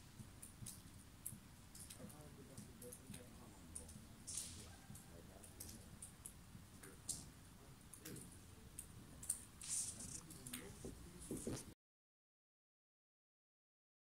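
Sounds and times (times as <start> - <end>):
sharp clicks and ticks: 0.2 - 7.3.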